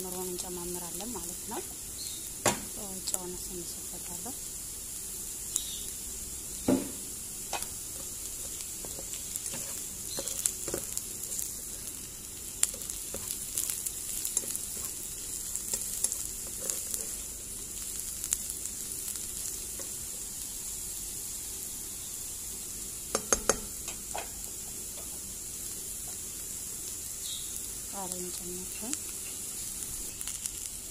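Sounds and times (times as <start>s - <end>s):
vegetables sizzling in oil: 0.0s - 30.9s
spatula scraping and knocking pan: 6.7s - 11.4s, 12.6s - 15.0s, 23.1s - 25.2s.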